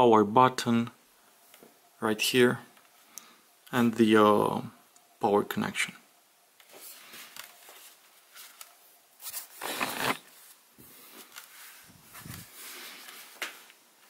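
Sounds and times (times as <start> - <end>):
plastic router handling noise: 9.4 - 10.3.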